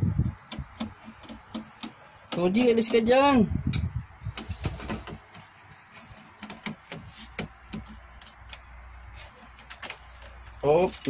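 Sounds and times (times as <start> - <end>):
screwdriver clicking on sheet metal: 0.4 - 5.5.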